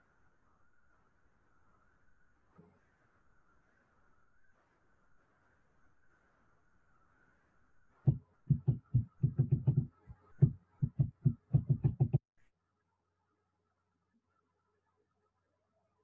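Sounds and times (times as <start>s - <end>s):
dull low knocks: 8.1s - 12.2s.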